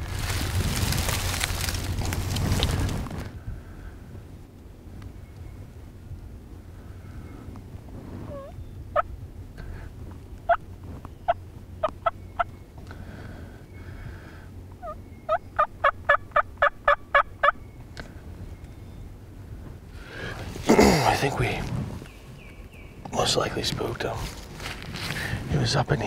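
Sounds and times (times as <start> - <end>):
turkey calls: 8.3 - 9.1, 10.4 - 12.6, 14.8 - 17.6.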